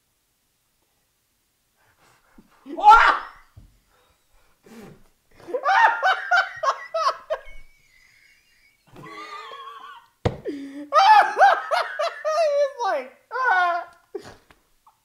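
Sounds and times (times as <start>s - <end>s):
people laughing hard: 5.4s - 10.1s, 10.9s - 13.9s.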